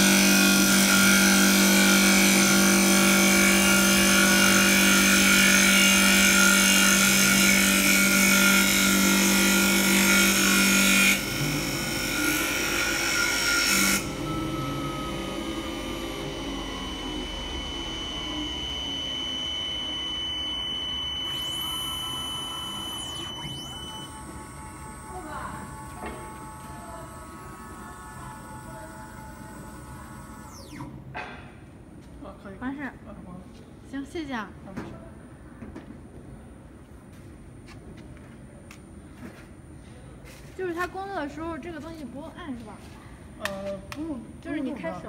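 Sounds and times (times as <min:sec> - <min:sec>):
lathe machine hum: 0:00.0 - 0:30.8
spindle winding down whine: 0:13.9 - 0:31.0.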